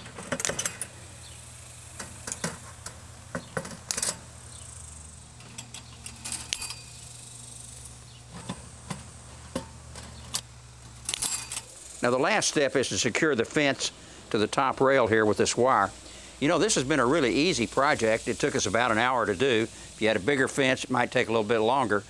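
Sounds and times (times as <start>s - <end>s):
steady low hum: 0.0s - 22.0s
metal mesh jingling: 11.0s - 11.7s.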